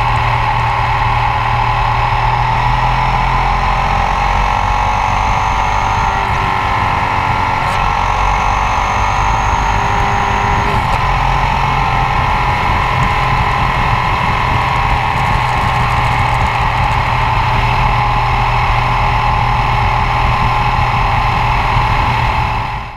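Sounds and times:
motorcycle engine cruising: 0:00.0 - 0:22.9
wind rush: 0:04.7 - 0:22.9.

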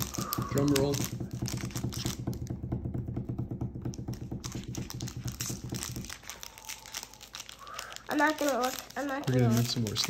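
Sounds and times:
hand drum roll on countertop: 0:00.3 - 0:05.8.

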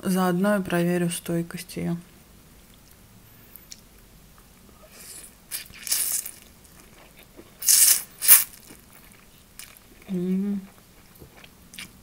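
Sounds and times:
noodles being slurped: 0:05.0 - 0:08.8.

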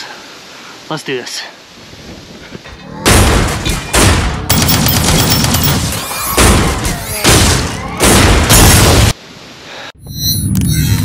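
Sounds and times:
explosion booms: 0:03.0 - 0:04.5, 0:06.4 - 0:09.1.

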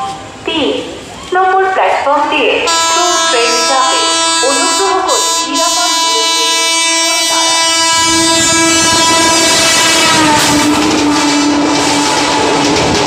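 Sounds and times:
train rushing and clattering: 0:00.0 - 0:13.0
locomotive air horn blast: 0:02.7 - 0:12.4.

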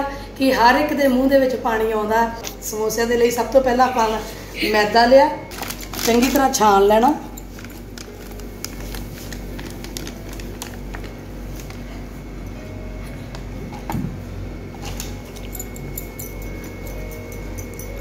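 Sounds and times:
soft background music: 0:00.0 - 0:18.0.

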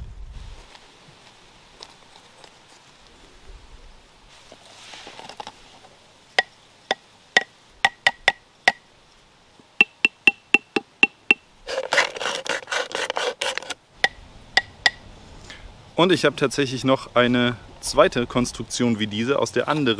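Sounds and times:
wooden marimba notes: 0:09.8 - 0:11.4.

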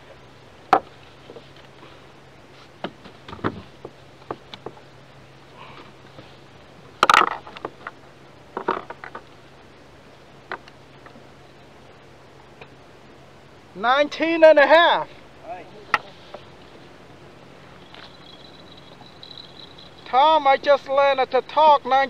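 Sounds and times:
faint steady hum: 0:00.0 - 0:22.0
fishing gear knocks and clicks: 0:17.8 - 0:20.1.

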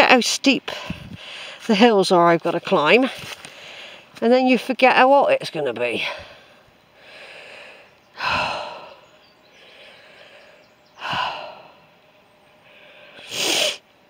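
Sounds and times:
man breathing heavily: 0:06.1 - 0:13.8.

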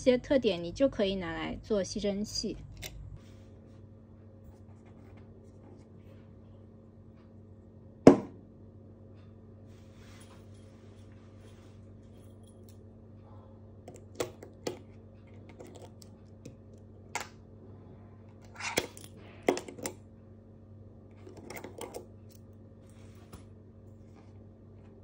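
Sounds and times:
faint steady hum: 0:00.0 - 0:25.0
sharp knock on tabletop: 0:08.1 - 0:08.4.

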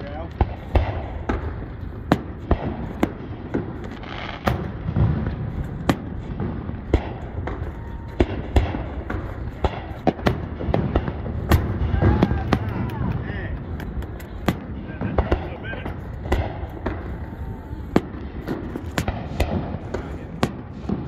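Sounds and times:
fireworks bangs: 0:00.0 - 0:21.0
steady low rumble: 0:00.0 - 0:21.0.

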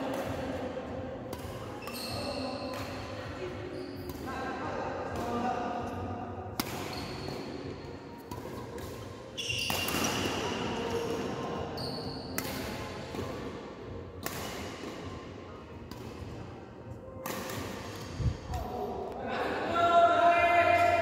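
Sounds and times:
shoes squeaking on court: 0:01.8 - 0:02.7, 0:09.3 - 0:12.4
rackets hitting shuttlecock: 0:06.5 - 0:11.4, 0:12.1 - 0:16.4, 0:17.2 - 0:18.8.

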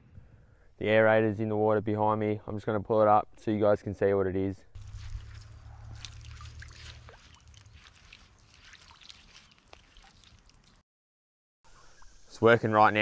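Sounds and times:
low rumble: 0:04.8 - 0:07.2
small splashes: 0:04.8 - 0:10.8
water trickling and dripping: 0:04.8 - 0:10.8.

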